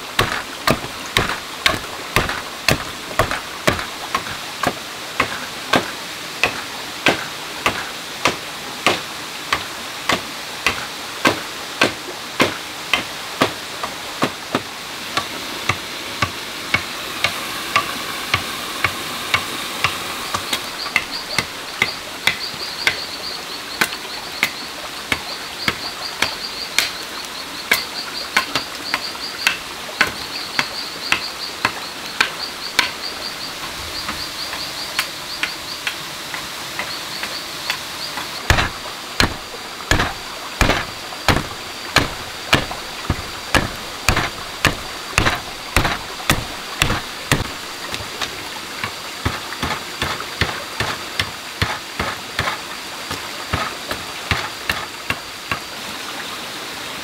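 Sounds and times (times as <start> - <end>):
insects chirping: 0.0 - 12.0, 12.9 - 57.0
blade chopping into wood: 0.2 - 13.6, 14.2 - 23.0, 25.6 - 27.0, 38.5 - 55.6.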